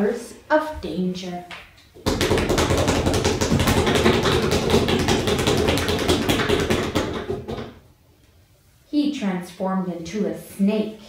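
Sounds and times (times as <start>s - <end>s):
rapid drumming: 2.0s - 7.8s.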